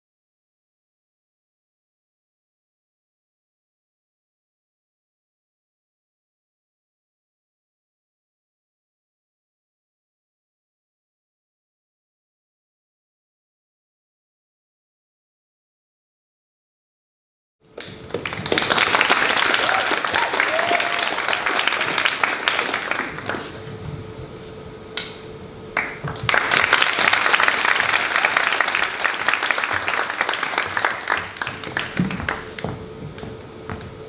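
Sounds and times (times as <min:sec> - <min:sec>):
audience applauding: 0:17.8 - 0:23.6, 0:25.8 - 0:32.7.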